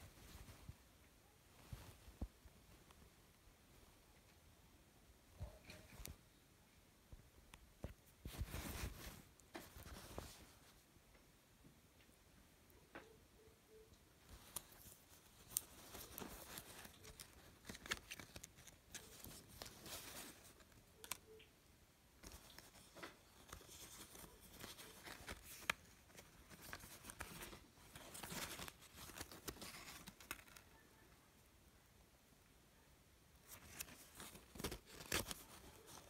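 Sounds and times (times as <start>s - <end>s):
paper tags rustling on cloth: 7.8s - 10.8s, 13.7s - 21.5s, 22.2s - 31.0s, 33.4s - 36.0s.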